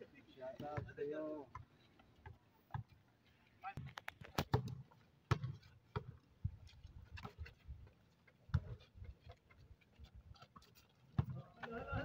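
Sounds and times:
basketball thuds and taps: 4.4s - 6.2s, 11.2s - 11.4s.

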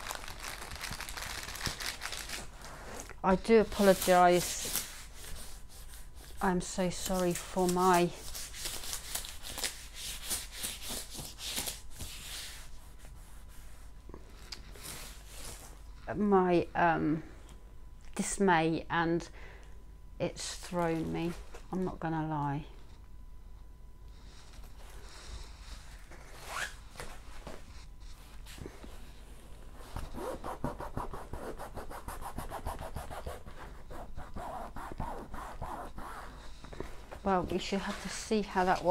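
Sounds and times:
hands rubbing over paper: 2.3s - 14.0s
hand rubbing plastic film: 26.0s - 28.4s.

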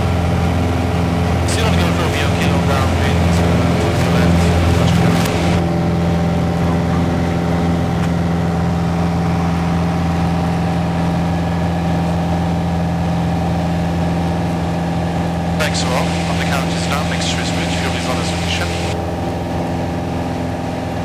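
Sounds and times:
light aircraft engine drone: 0.0s - 21.0s.

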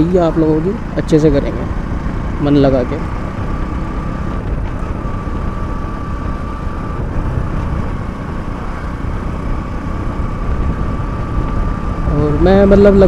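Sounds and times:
motorcycle engine running: 0.0s - 13.0s
wind rumble on microphone: 3.3s - 13.0s.

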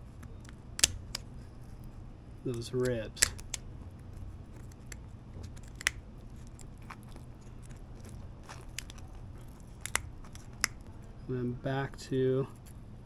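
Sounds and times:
knife crunching through fish bones: 4.5s - 10.9s.

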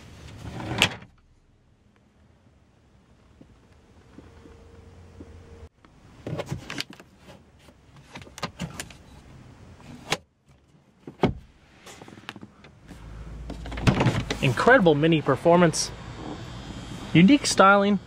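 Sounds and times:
faint steady hum: 0.9s - 6.3s.

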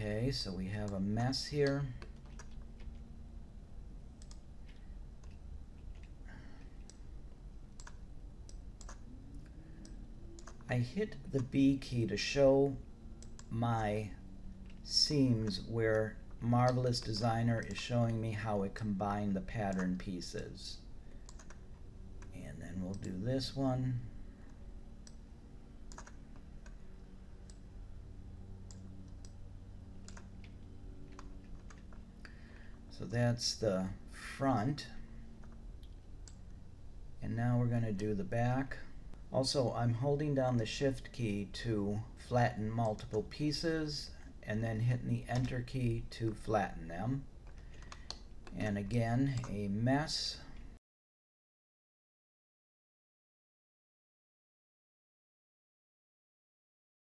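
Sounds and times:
faint low hum: 0.0s - 50.8s
computer mouse and keyboard clicks: 1.6s - 3.1s, 4.2s - 6.2s, 7.7s - 10.7s, 16.6s - 18.0s, 21.2s - 23.2s, 25.9s - 26.8s, 30.0s - 32.1s, 47.4s - 48.6s, 49.3s - 49.6s.

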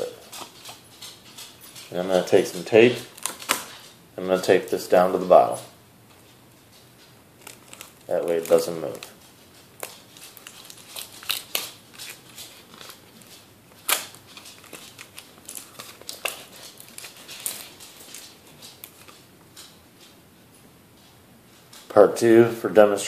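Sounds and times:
plastic bottle crinkling: 1.8s - 5.5s, 7.3s - 19.3s.

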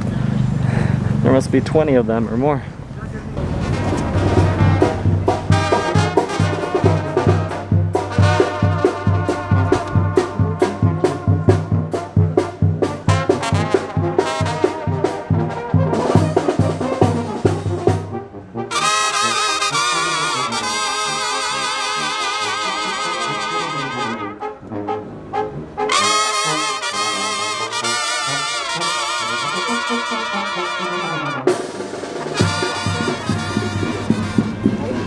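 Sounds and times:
held wavering brass notes: 3.2s - 35.0s
trumpets and trombones: 3.3s - 35.0s
tuba oom-pah bass: 3.3s - 35.0s.

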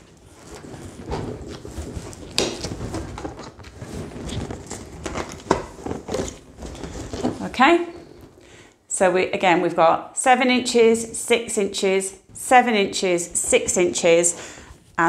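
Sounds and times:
latex balloons rubbing: 0.0s - 8.6s.

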